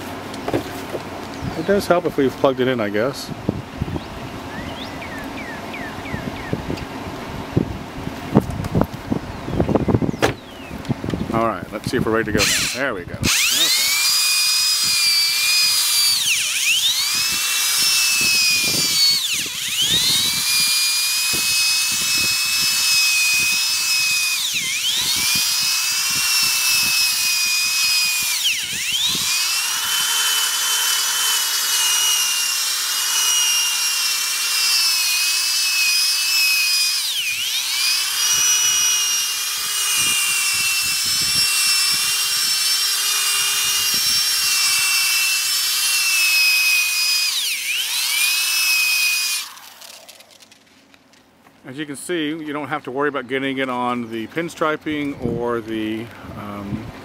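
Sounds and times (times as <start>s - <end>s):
buffing machine motor whine: 12.3s - 50.7s.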